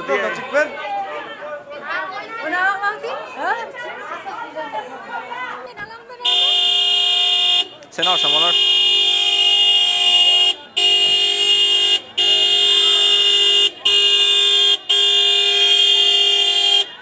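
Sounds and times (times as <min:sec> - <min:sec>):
car horn honking: 0:06.2 - 0:17.0.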